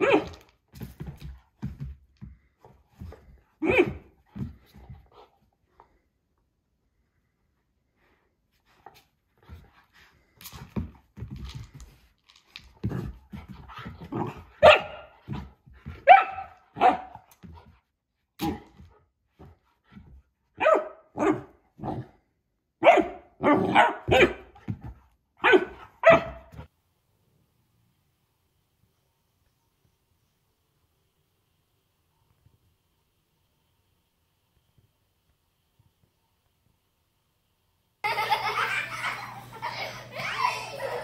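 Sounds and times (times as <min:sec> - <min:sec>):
puppy barking: 0:14.6 - 0:15.1, 0:16.0 - 0:17.2, 0:20.6 - 0:21.5, 0:22.8 - 0:24.5, 0:25.4 - 0:26.5.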